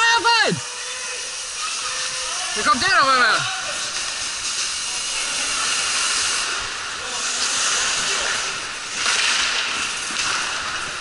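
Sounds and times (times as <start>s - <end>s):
skates scraping on ice: 3.7s - 11.0s.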